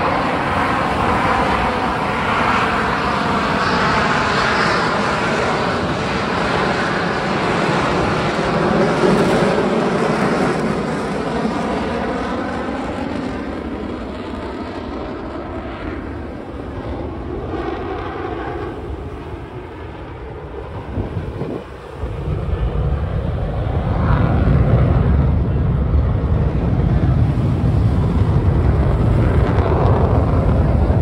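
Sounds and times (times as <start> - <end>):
jets flying over: 0.0 - 31.0.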